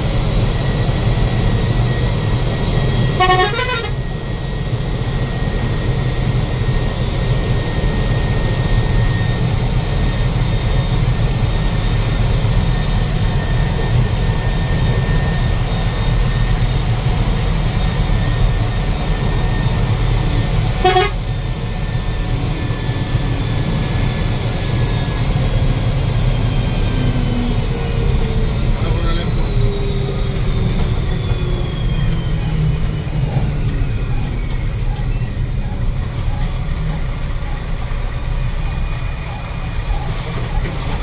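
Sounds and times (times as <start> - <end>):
bus road rumble: 0.0 - 41.0
vehicle horn toot: 3.2 - 4.0, 20.8 - 21.2.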